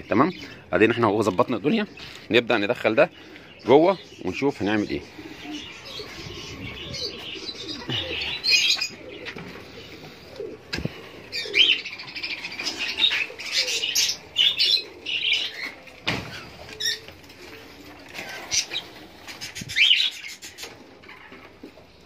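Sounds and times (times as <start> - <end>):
budgerigars chirping: 19.4 - 20.8.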